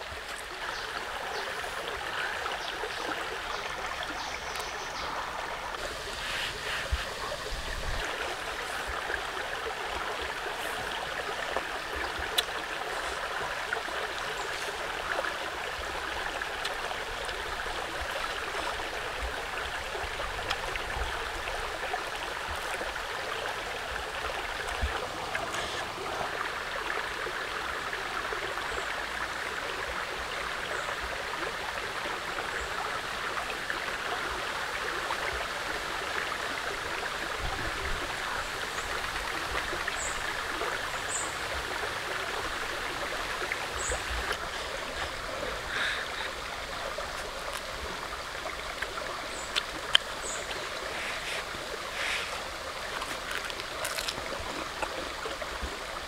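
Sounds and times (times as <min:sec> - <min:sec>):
running water rushing: 0:00.0 - 0:56.0.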